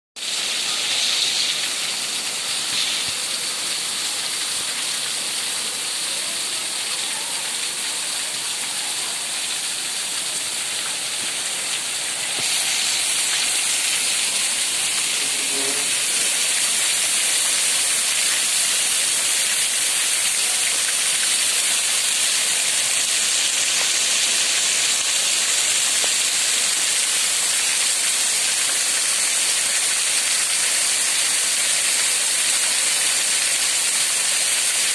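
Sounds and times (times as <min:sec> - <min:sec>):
heavy rain on street: 0:00.2 - 0:34.9.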